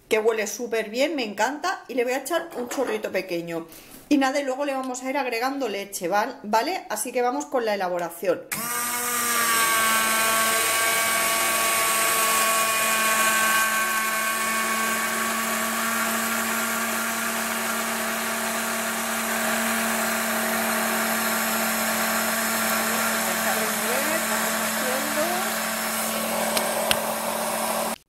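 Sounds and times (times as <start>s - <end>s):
stick blender whining: 8.5s - 28.0s.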